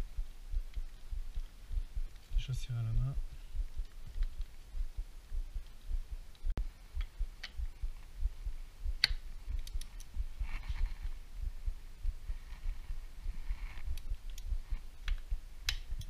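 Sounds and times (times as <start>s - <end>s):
low irregular thumping: 0.0s - 16.0s.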